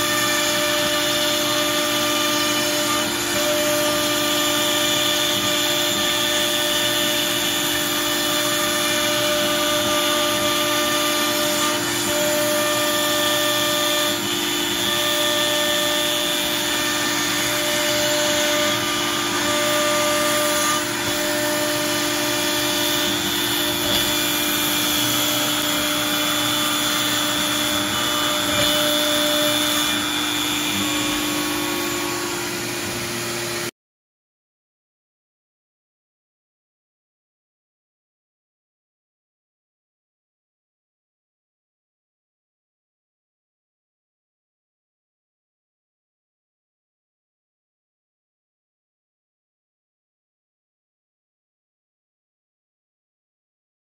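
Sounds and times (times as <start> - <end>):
dust collection vacuum: 0.0 - 33.7
router spindle cutting: 0.0 - 33.7.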